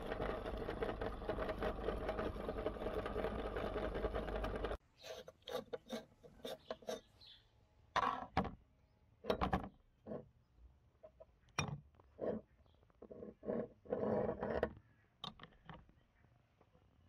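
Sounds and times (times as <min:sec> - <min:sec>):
meat grinder running: 0:00.0 - 0:04.8.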